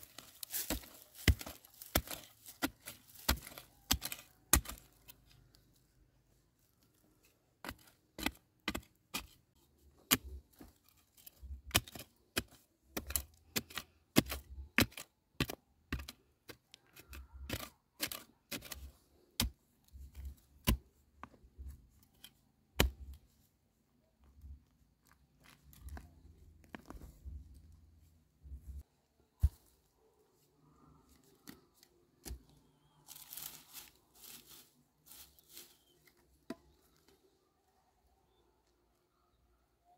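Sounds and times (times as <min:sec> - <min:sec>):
digging stick knocking stony earth: 0:00.0 - 0:05.3, 0:07.6 - 0:09.4, 0:10.0 - 0:23.2, 0:31.3 - 0:36.8.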